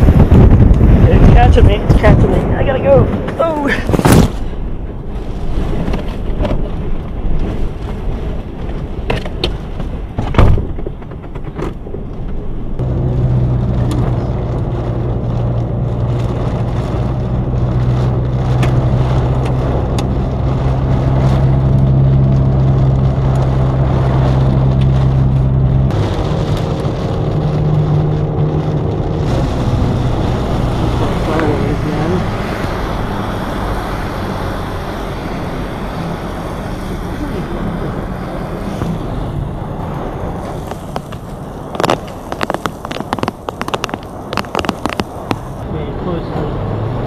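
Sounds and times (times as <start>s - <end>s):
engine and road drone: 0.0s - 47.0s
loud thump: 3.1s - 4.5s, 10.2s - 11.5s
clunks and knocks entering vehicle: 9.1s - 12.5s.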